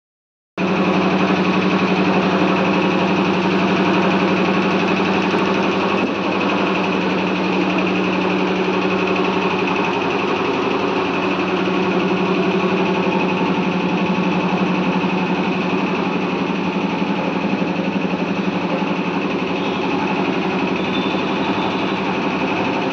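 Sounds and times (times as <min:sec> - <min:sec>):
motor running steadily: 0:00.6 - 0:22.9.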